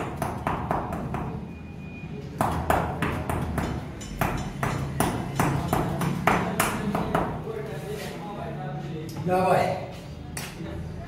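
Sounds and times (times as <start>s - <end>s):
hammer striking brick: 0.0s - 1.4s, 2.4s - 7.4s.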